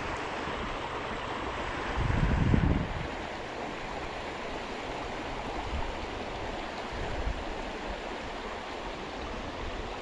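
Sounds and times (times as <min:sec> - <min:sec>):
stream flowing over gravel: 0:00.0 - 0:10.0
wind buffeting microphone: 0:01.9 - 0:03.2.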